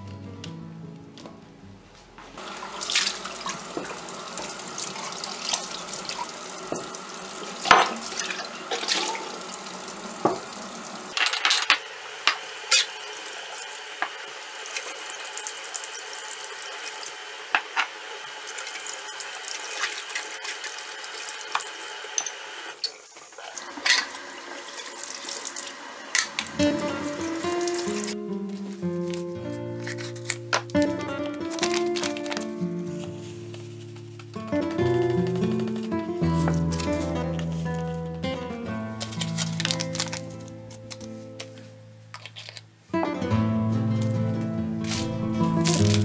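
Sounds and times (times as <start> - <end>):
tap running into sink: 2.6 - 9.4, 10.2 - 10.6.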